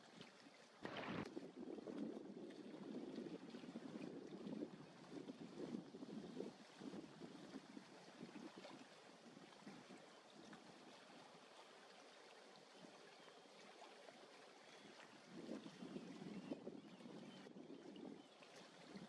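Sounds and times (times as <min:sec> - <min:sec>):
water lapping among rocks: 0:00.0 - 0:19.0
wind on microphone: 0:00.8 - 0:10.6, 0:15.1 - 0:19.0.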